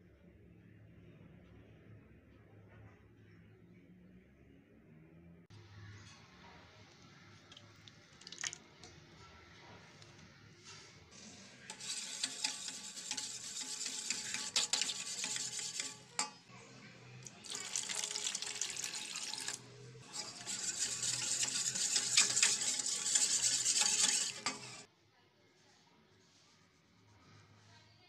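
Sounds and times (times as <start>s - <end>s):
whisk wires scraping metal bowl: 10.0s - 24.9s
whisk swishing in yogurt: 10.1s - 16.4s, 17.2s - 24.9s.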